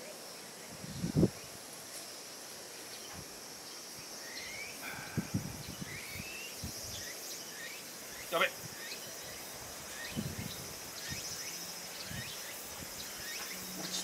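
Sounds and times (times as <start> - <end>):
insects droning: 0.0 - 14.0
bird chirps: 5.7 - 14.0.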